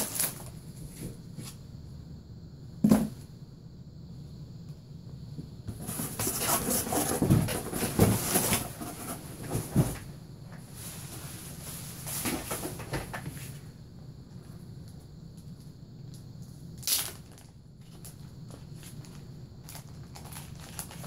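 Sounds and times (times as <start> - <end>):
cardboard box rustling and scraping: 5.7 - 10.1.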